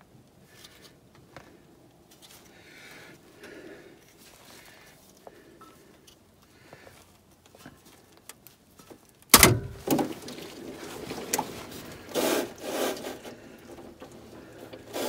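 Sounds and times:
fluid gushing into drain pan: 9.8s - 15.0s.

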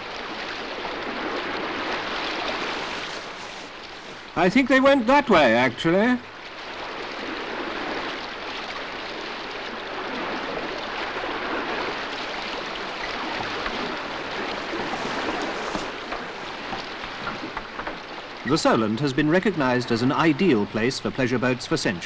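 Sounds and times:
sea water rushing and splashing: 0.0s - 22.0s.

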